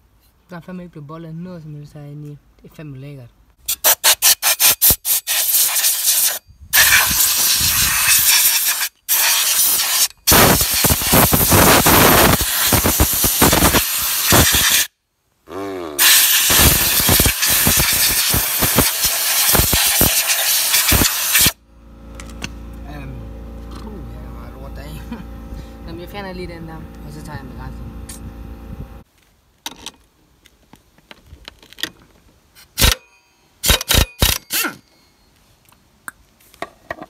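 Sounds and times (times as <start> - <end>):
aerosol can spraying: 3.8 - 14.9, 16.0 - 21.6.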